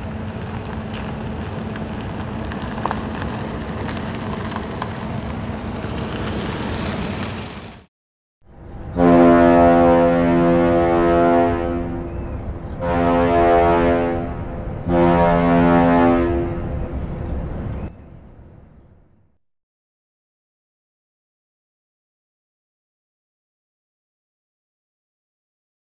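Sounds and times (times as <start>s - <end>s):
ship's horn blasts: 8.8s - 17.6s.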